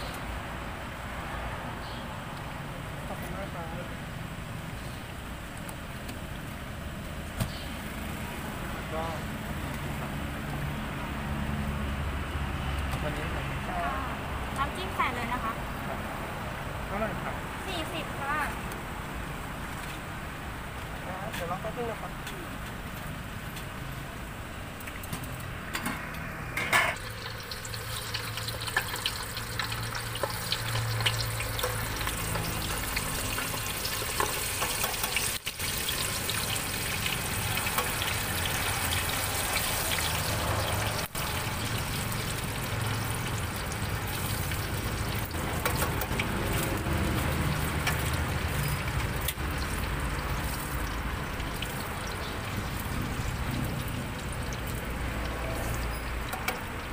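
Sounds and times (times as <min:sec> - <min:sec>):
oil sizzling and bubbling: 0:00.0 - 0:56.9.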